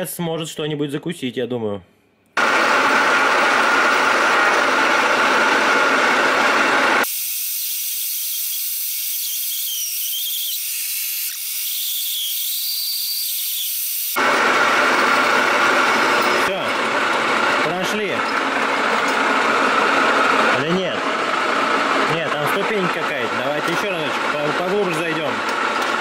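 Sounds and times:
hole saw cutting metal on lathe: 3.0 - 20.6.

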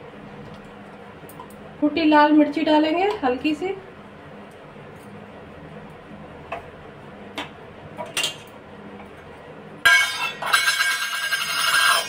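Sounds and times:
steel utensils clattering: 9.9 - 12.0.

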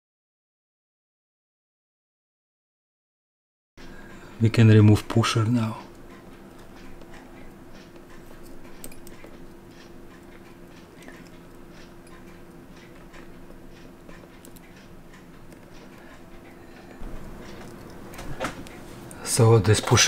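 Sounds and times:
steady hum: 3.8 - 20.0
tweezers clicking on steel: 5.8 - 15.8.

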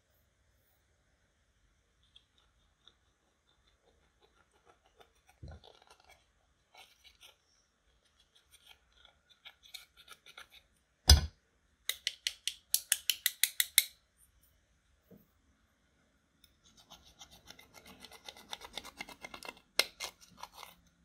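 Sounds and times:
plastic tool scraping eyeshadow: 3.6 - 10.7, 16.6 - 20.9.

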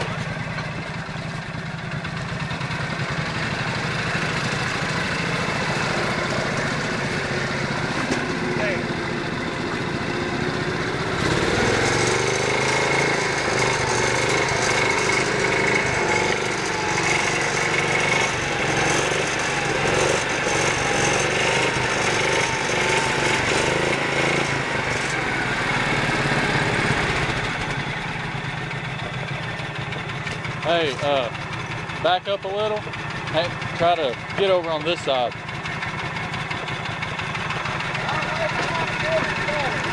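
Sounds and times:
small tractor engine labouring: 0.0 - 39.9.

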